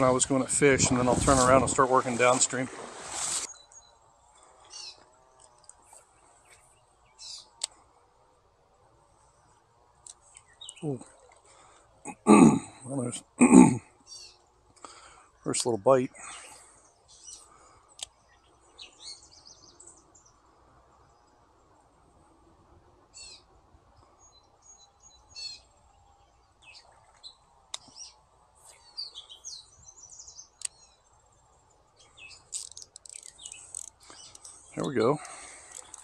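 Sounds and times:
songbirds chirping: 0.0 - 36.0
sharp ticks: 32.4 - 34.6, 35.6 - 36.0.

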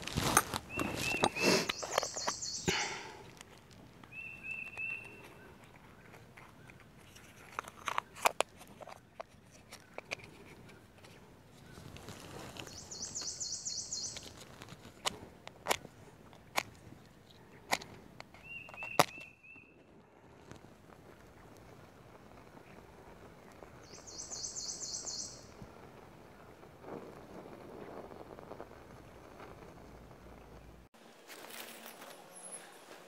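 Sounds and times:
dry leaves crunching: 0.0 - 5.2, 11.7 - 15.0, 31.0 - 33.0
handling noises: 0.0 - 13.4
bird chirping: 0.6 - 3.3, 4.0 - 7.4, 9.7 - 14.4, 18.3 - 19.9, 23.8 - 25.6.

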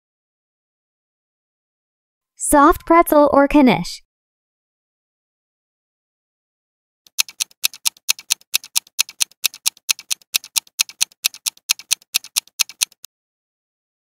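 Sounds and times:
fast clock ticks: 7.1 - 13.1.

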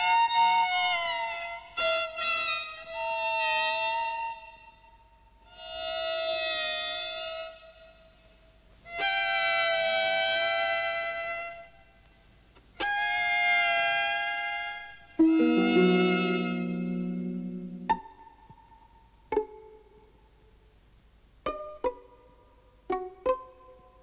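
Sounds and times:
violin long held notes: 15.2 - 18.0.

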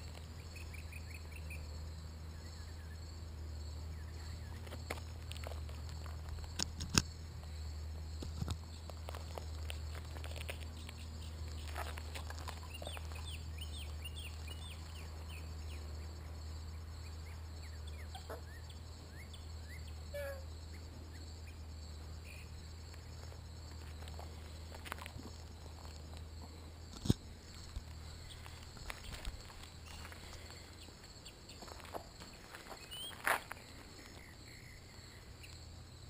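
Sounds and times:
birds chirping: 0.0 - 3.1, 9.7 - 23.4, 27.3 - 35.6
steady low hum: 0.0 - 36.0.

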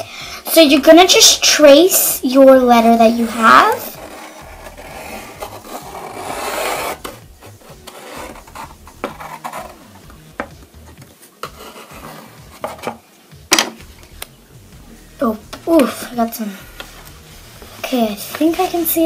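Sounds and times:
pencil scratching on wood: 3.2 - 10.0, 11.4 - 13.0.

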